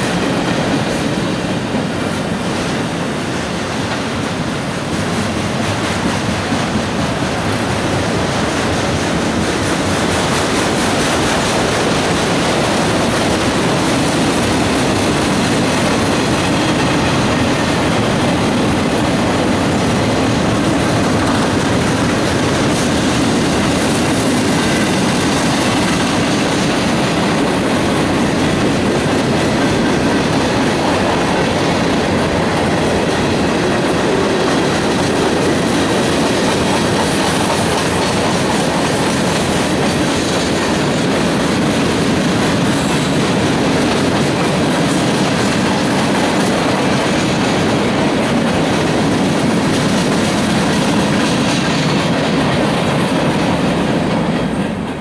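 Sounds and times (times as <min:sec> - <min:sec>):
steel wheels running on rails: 0:00.0 - 0:55.0.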